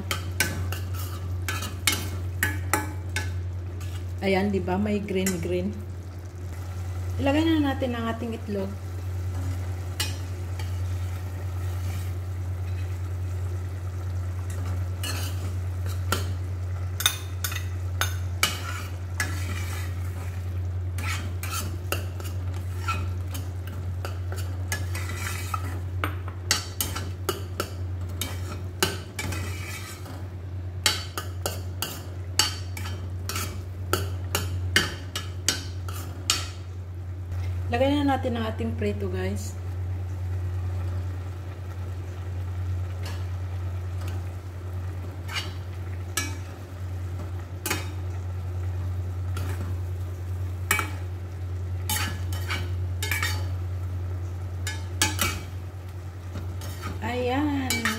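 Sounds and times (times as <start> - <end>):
metal spoon scraping a pot: 0.1 - 2.9, 15.0 - 15.4, 17.0 - 20.0, 21.0 - 23.1, 24.3 - 25.8, 29.2 - 30.2, 45.3 - 45.6, 51.9 - 53.5
metal spoon clinking on a pot: 57.7 - 57.9.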